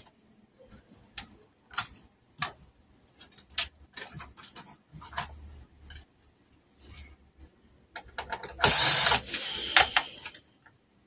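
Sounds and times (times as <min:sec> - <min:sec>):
hands handling circuit boards: 0:00.0 - 0:08.6.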